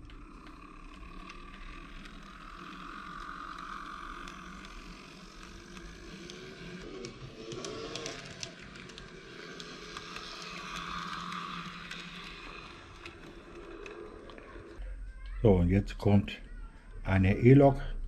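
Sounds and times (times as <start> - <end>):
model train motor whir: 0.0 - 14.8
scattered clicks: 0.0 - 14.8.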